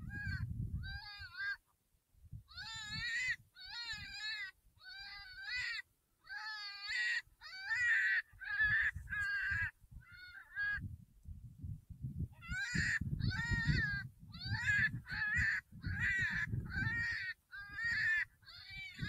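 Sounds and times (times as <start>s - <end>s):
high-pitched wavering distress cries: 2.5s - 10.6s.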